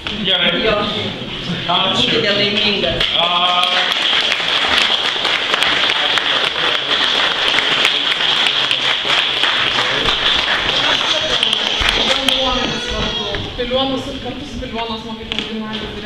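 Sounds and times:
crowd applause: 3.0s - 13.5s.

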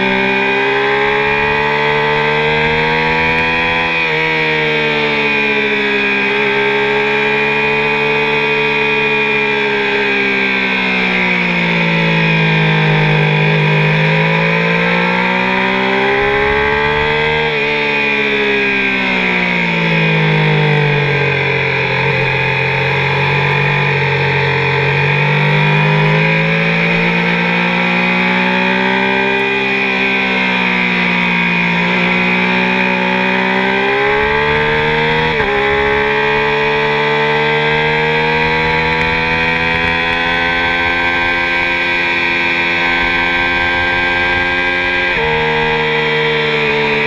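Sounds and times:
motorcycle engine revving: 0.0s - 47.0s.

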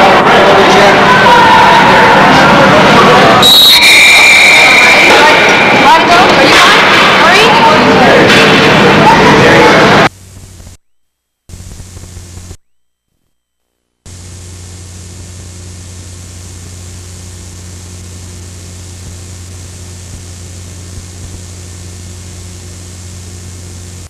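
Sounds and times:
low hum: 9.7s - 24.0s
tape hiss: 9.9s - 24.0s.

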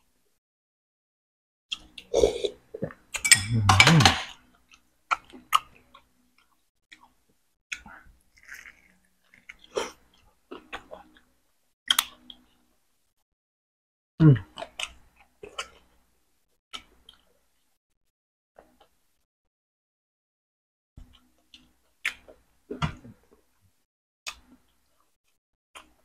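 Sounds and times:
person chewing: 4.7s - 11.2s.

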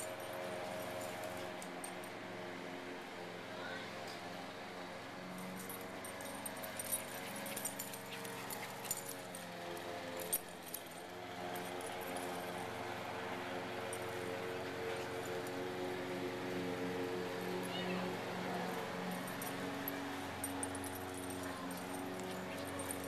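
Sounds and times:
metal tags jingling: 5.4s - 12.7s, 17.3s - 23.0s.

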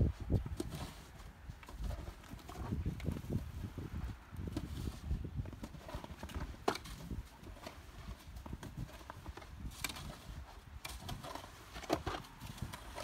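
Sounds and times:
shovel scraping snow on roof: 4.5s - 13.0s.

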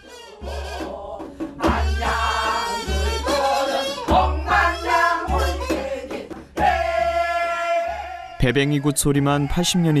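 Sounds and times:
group singing folk song: 0.0s - 8.4s
bamboo flute: 1.7s - 6.0s.

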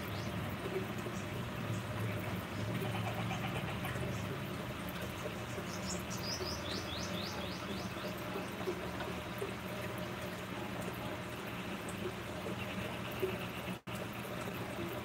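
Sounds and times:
running water: 0.0s - 15.0s
bird chirping: 5.5s - 8.6s.

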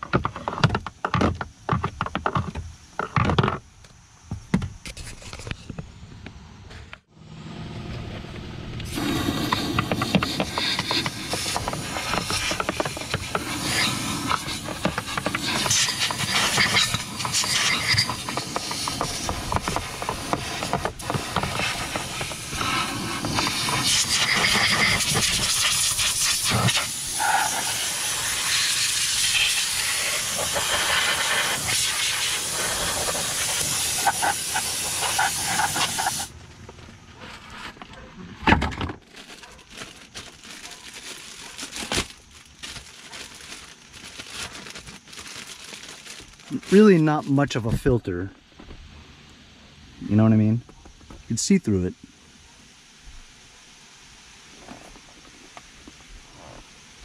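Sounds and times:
vacuum cleaner running: 7.8s - 36.3s
debris clicks in hose: 8.8s - 36.3s
handling sounds: 35.2s - 47.9s.

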